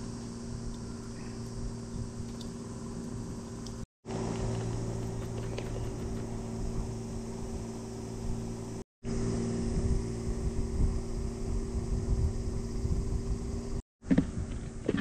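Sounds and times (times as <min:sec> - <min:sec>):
steady low hum: 0:00.0 - 0:15.0
wind rumble on microphone: 0:04.4 - 0:15.0.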